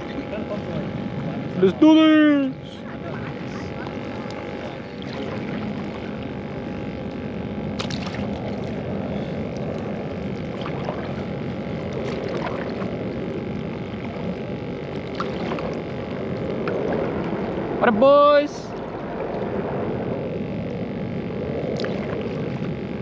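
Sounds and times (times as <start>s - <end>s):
water and wind rushing: 0.0s - 23.0s
paddle splashing in water: 7.8s - 8.5s, 10.4s - 11.2s, 12.0s - 12.9s, 15.1s - 15.8s.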